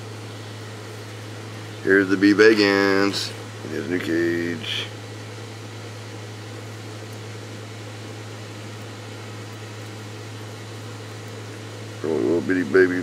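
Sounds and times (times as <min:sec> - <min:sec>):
even hiss: 0:00.0 - 0:05.8, 0:09.8 - 0:13.0
low machine hum: 0:00.0 - 0:13.0.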